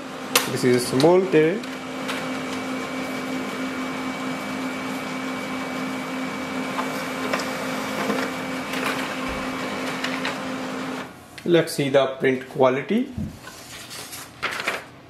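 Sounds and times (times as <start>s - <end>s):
laser printer whirring: 0.0s - 11.2s
printer clicks: 6.8s - 10.5s.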